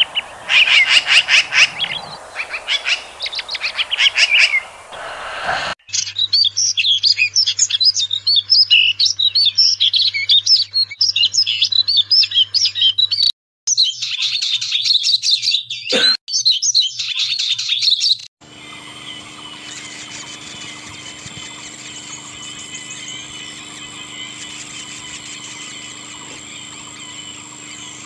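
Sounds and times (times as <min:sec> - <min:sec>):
bird twittering song: 0:00.0 - 0:04.9, 0:05.9 - 0:28.0
songbirds chirping and trilling: 0:00.0 - 0:28.0
steady hum: 0:18.4 - 0:28.0.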